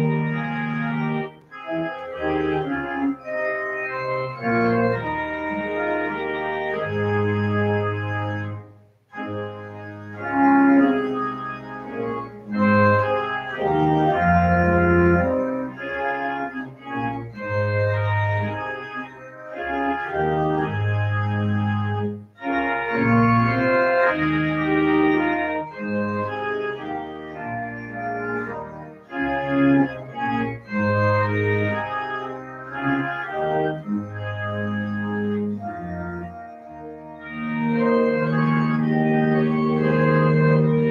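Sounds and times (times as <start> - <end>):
organ music: 0.0 - 40.9.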